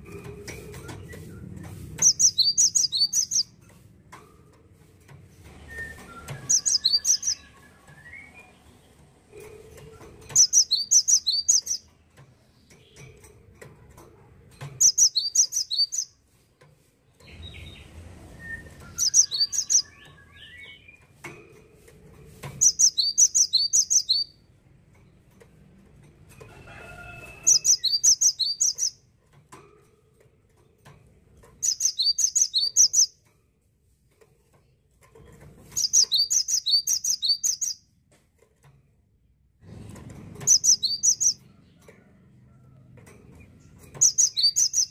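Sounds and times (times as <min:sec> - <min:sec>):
bird singing ringing notes: 0:06.4 - 0:08.5, 0:10.4 - 0:11.8, 0:14.8 - 0:16.1, 0:18.9 - 0:20.8, 0:22.6 - 0:24.4, 0:27.5 - 0:29.0, 0:31.6 - 0:33.1, 0:35.8 - 0:37.8, 0:44.0 - 0:44.9.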